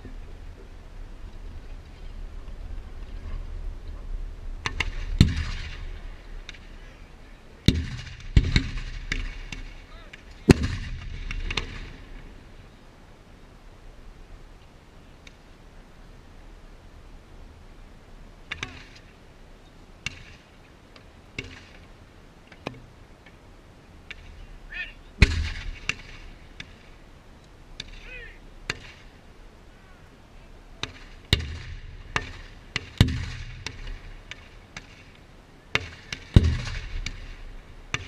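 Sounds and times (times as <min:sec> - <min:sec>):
cannon booms: 0:04.6 - 0:06.6, 0:07.6 - 0:12.2, 0:25.2 - 0:26.2, 0:30.8 - 0:34.3, 0:35.7 - 0:38.0
faint shouted voices: 0:24.4 - 0:25.2, 0:28.0 - 0:28.5, 0:29.7 - 0:30.9.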